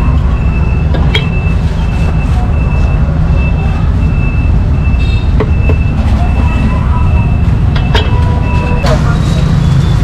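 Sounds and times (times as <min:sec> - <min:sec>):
street traffic rumble: 0:00.0 - 0:10.0.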